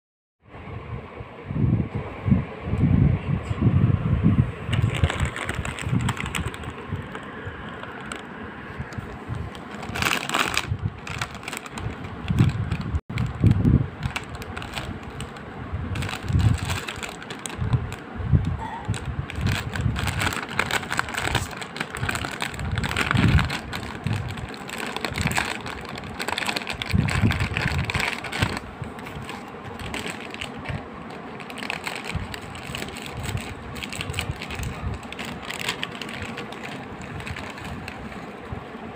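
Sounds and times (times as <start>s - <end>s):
snack packets crinkling: 4.7s - 8.3s, 8.9s - 15.4s, 16.0s - 18.0s, 18.8s - 38.4s.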